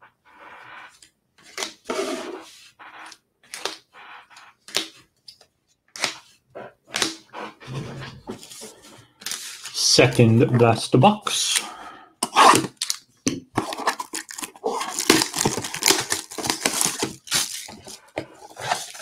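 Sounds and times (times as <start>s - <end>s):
cards and packaging rustling: 8.3s - 10.3s, 12.5s - 19.0s.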